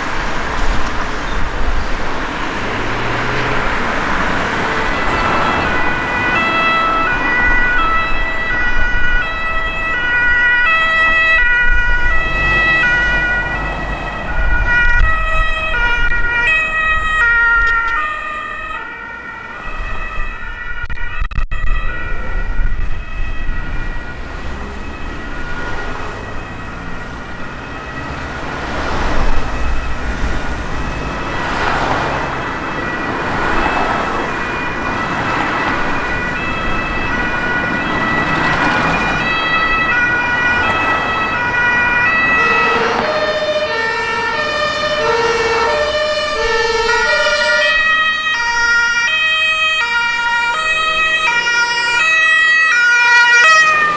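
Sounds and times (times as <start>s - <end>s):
two-tone siren: 0.0s - 53.9s
vehicle engine and road noise: 0.0s - 53.9s.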